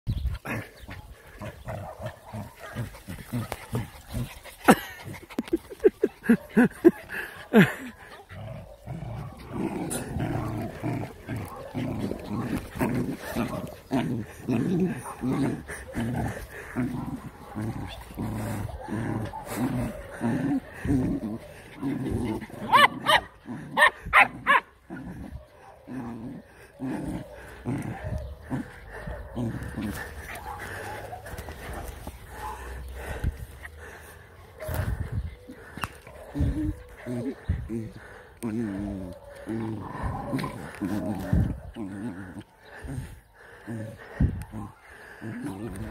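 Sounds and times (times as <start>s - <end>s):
dogs growling: 0.1s - 45.9s
dogs barking: 0.5s - 38.2s, 39.0s - 45.9s
dogs yelping barks: 11.1s - 14.0s, 17.2s - 25.9s, 27.1s - 32.9s, 34.4s - 37.3s.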